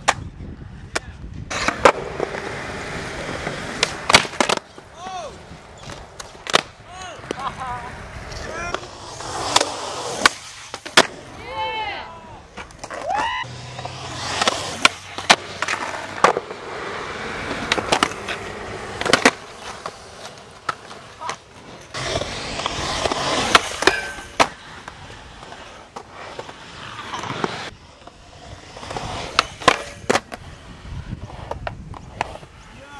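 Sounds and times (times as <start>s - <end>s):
skateboard wheels rolling on concrete: 0.0s - 32.9s
skateboard clacks and slaps: 3.4s - 5.2s, 5.8s - 7.5s, 12.5s - 16.6s, 19.0s - 20.0s.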